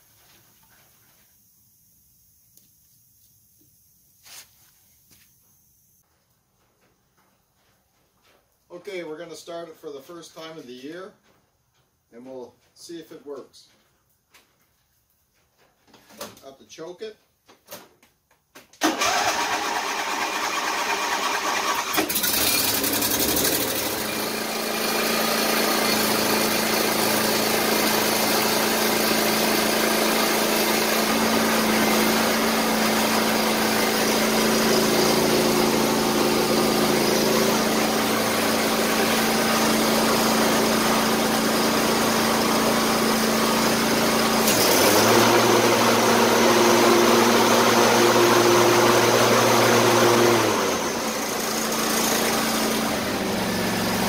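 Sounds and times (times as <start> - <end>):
lawn tractor engine running: 18.8 - 54.0.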